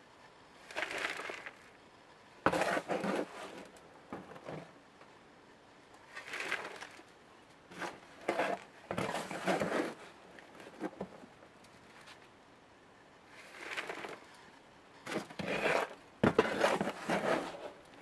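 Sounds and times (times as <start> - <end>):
soil pouring into plastic pot: 0.7 - 1.6, 6.1 - 7.0, 13.4 - 14.2.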